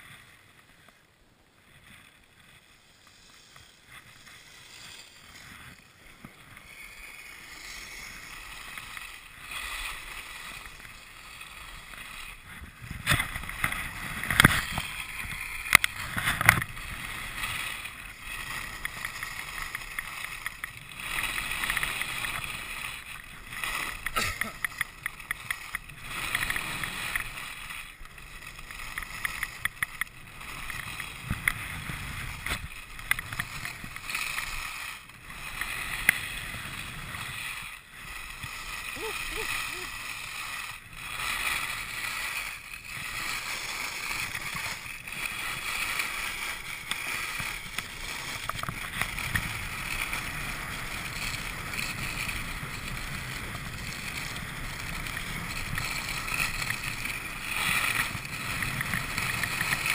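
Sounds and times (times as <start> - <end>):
skis scraping over snow: 0.0 - 59.9
sharp ticks: 28.5 - 31.6.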